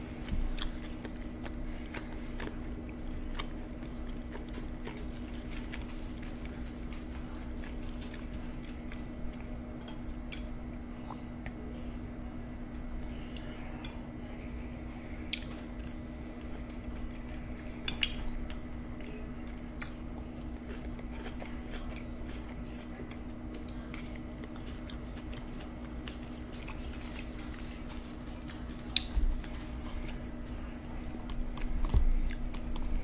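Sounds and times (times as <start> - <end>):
soft chewing: 0.0 - 33.0
steady low hum: 0.0 - 33.0.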